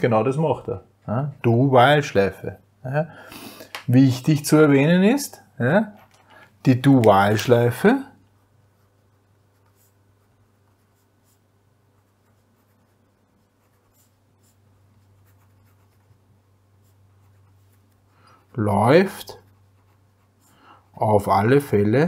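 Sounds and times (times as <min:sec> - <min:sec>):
low steady hum: 0:00.0 - 0:22.0
pen scratching on paper: 0:08.4 - 0:16.2, 0:16.8 - 0:18.0, 0:18.8 - 0:20.6.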